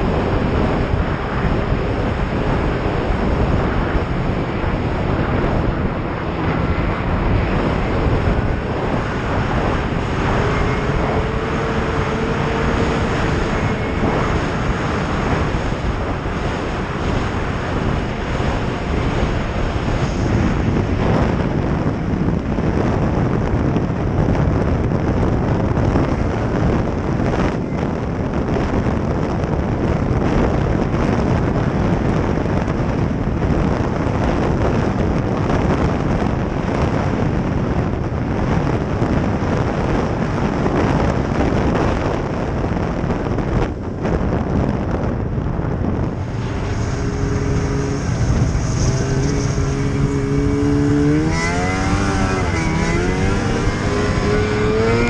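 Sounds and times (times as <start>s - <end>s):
snowmobile engine and track: 0.0s - 55.0s
wind buffeting microphone: 0.0s - 55.0s
faint whine: 45.2s - 52.8s.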